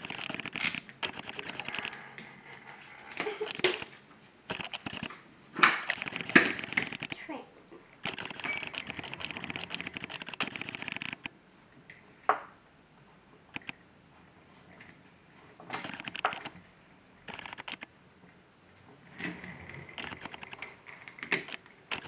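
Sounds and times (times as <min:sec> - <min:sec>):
toy car rolling rattle: 0:00.0 - 0:07.2, 0:08.0 - 0:11.3, 0:19.1 - 0:22.0.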